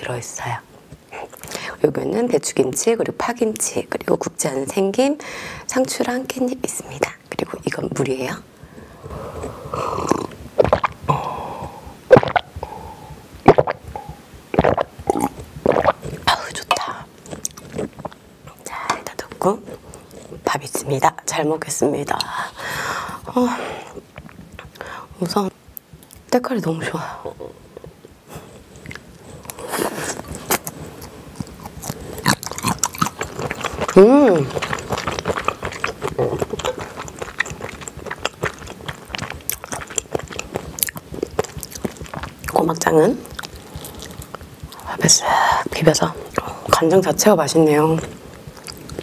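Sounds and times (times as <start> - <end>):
person gulping water: 9.4 - 18.2, 31.4 - 42.5
mouth clicks and crackles: 9.4 - 20.8, 23.8 - 26.4, 27.2 - 49.0
close-miked chewing: 13.5 - 21.1, 27.2 - 49.0.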